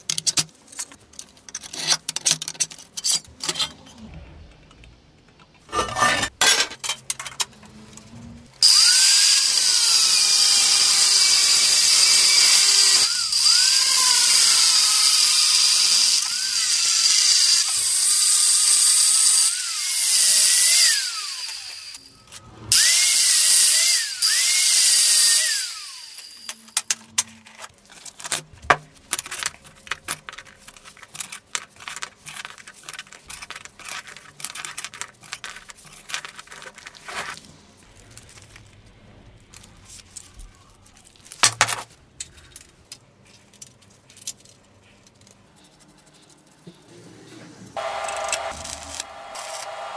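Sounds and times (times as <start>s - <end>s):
angle grinder cutting steel: 8.6s - 22.1s, 22.7s - 26.9s, 47.8s - 49.9s.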